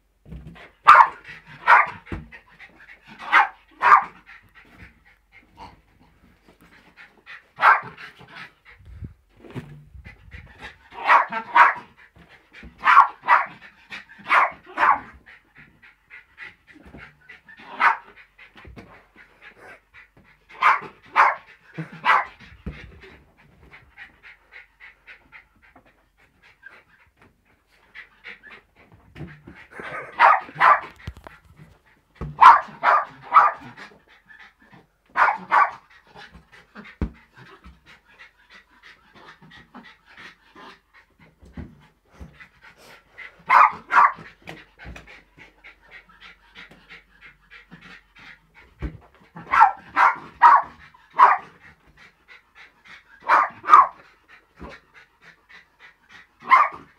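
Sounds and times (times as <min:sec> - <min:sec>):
dog yapping: 0:00.9 - 0:02.0, 0:03.2 - 0:04.1, 0:07.6 - 0:07.9, 0:11.0 - 0:11.8, 0:12.8 - 0:13.5, 0:17.7 - 0:18.0, 0:30.0 - 0:31.0, 0:32.4 - 0:33.6, 0:35.2 - 0:35.8, 0:43.5 - 0:44.2, 0:49.5 - 0:51.4, 0:53.2 - 0:54.0, 0:56.4 - 0:56.8
dog panting: 0:00.9 - 0:09.1, 0:10.0 - 0:56.9.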